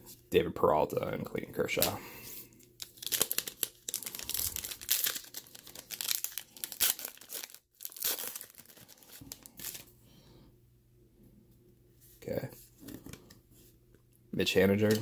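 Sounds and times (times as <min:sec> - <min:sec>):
card pack wrapper crinkling: 0:02.6 - 0:09.9.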